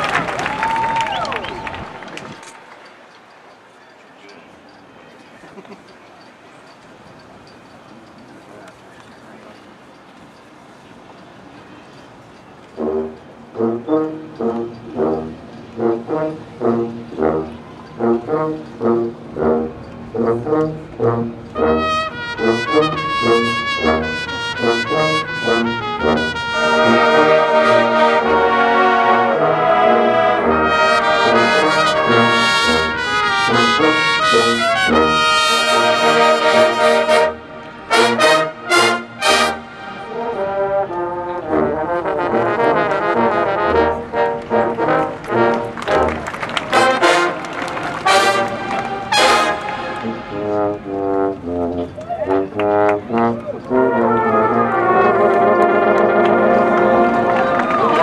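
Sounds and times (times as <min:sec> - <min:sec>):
brass line playing chords: 0:12.7 - 0:58.0.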